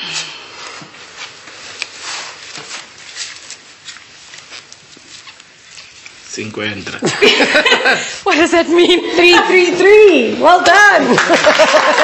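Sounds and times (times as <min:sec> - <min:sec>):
objects scraping and handling: 0:00.0 - 0:06.5
clothing rustling: 0:00.2 - 0:06.9.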